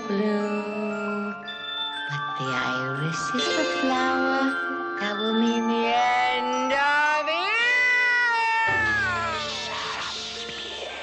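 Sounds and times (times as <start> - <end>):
high wailing tone: 7.3 - 11.0
low drone: 8.7 - 11.0.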